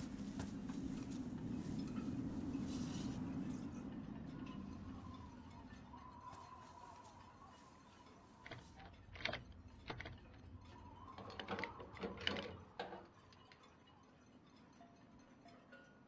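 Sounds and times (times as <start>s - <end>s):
padlock clicking and rattling: 8.4s - 10.5s, 11.1s - 13.6s.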